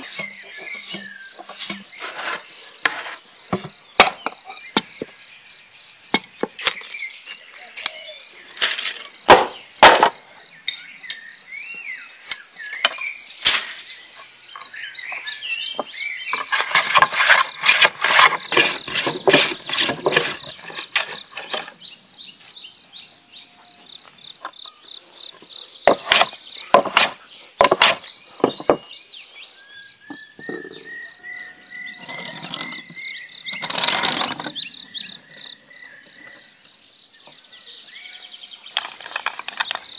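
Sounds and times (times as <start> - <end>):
knife drawn across bamboo ribs: 0.0 - 3.2, 16.4 - 21.7
insect chirring: 0.0 - 39.9
quick scraping strokes: 16.4 - 21.7.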